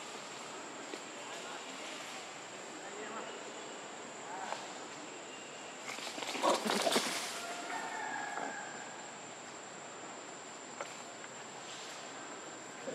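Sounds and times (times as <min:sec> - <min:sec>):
crackling rustles: 0:00.0 - 0:02.6, 0:05.8 - 0:08.0, 0:10.7 - 0:12.4
steady hiss: 0:00.0 - 0:12.9.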